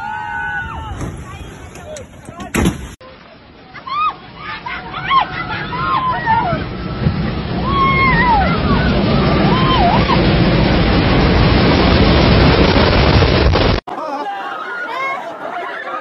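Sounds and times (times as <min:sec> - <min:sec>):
people exclaiming: 0:00.0 - 0:02.0, 0:03.7 - 0:10.4, 0:13.9 - 0:16.0
rocks crashing down: 0:06.5 - 0:13.8.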